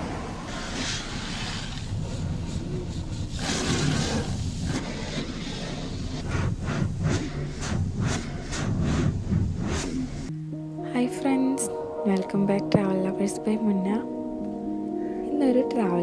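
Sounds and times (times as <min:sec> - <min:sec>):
car road noise rumble: 0:00.0 - 0:10.3.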